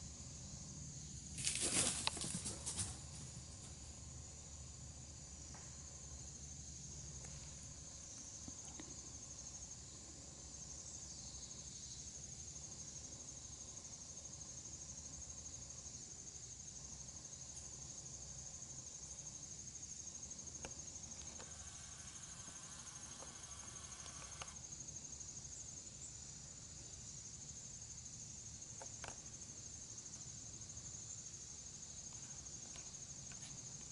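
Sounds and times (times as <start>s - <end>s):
insects trilling: 0.0s - 33.9s.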